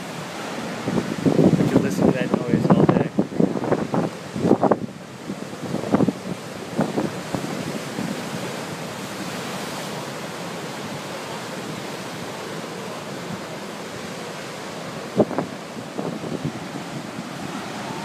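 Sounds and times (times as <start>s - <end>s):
surf breaking over rocks: 0.0s - 18.0s
wind buffeting microphone: 0.0s - 18.0s.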